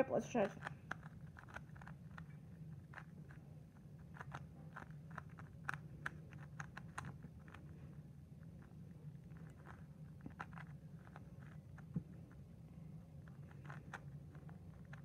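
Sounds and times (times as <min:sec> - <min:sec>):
plastic puzzle layers clicking: 0:00.4 - 0:03.4, 0:04.0 - 0:07.7.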